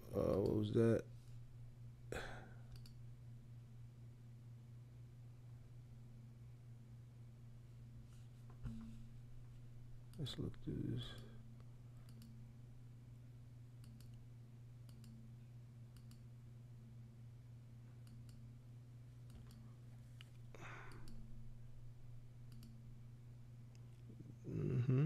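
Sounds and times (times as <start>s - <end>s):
low electrical hum: 0.0s - 25.0s
computer mouse clicks: 2.7s - 3.0s, 12.0s - 12.4s, 13.8s - 14.2s, 14.8s - 15.2s, 15.9s - 16.3s, 19.2s - 19.6s, 20.9s - 21.3s, 22.5s - 22.8s
soft hiss: 7.6s - 16.5s.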